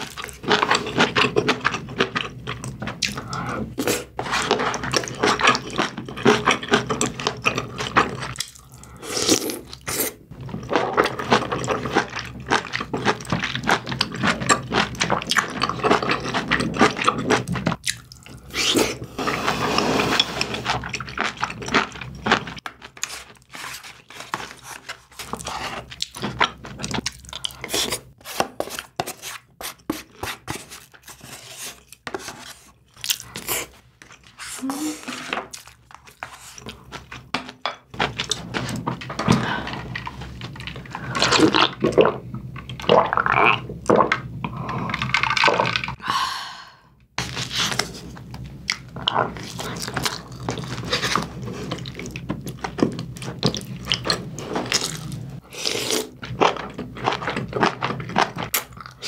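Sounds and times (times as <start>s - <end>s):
wooden spoon scraping a dish: 3.6s - 5.7s, 18.6s - 21.5s, 23.0s - 26.9s, 27.6s - 32.8s, 33.4s - 35.5s
wet chewing and mouth smacking: 4.5s - 9.9s, 10.7s - 18.8s.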